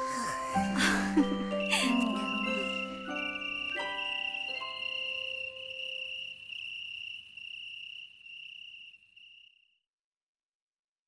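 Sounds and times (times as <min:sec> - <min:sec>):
chiming music notes: 0:00.0 - 0:07.4
crickets chirping: 0:00.0 - 0:09.8.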